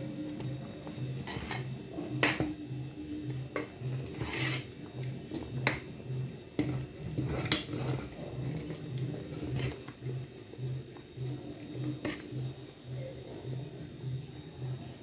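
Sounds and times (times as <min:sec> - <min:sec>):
metal spoon scraping a pot: 0:01.2 - 0:01.7, 0:03.6 - 0:04.8, 0:06.6 - 0:09.9, 0:12.0 - 0:12.4.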